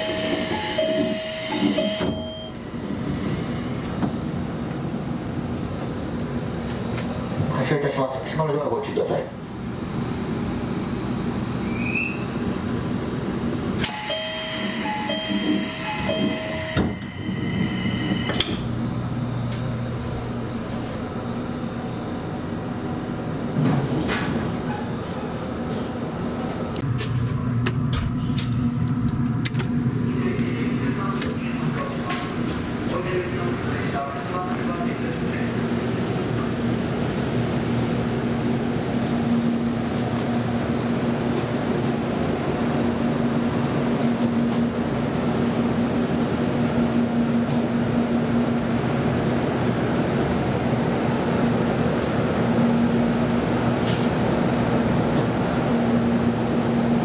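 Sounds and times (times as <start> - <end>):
electric train humming: 0.0 - 7.4, 9.2 - 23.6, 24.6 - 57.0
two-note door chime: 0.3 - 2.6.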